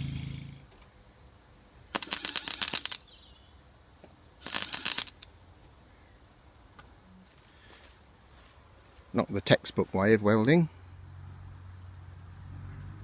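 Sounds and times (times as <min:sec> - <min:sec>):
low buzz: 0:00.0 - 0:03.1
arc welding crackling: 0:01.9 - 0:03.1, 0:04.4 - 0:05.3.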